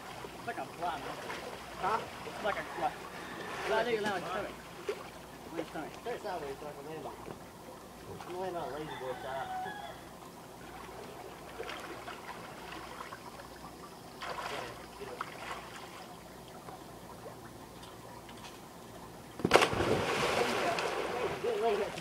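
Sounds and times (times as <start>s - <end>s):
soft splashes: 0.0s - 8.5s, 10.5s - 22.0s
water sloshing and trickling: 0.0s - 22.0s
loud splash of person landing: 19.4s - 21.7s.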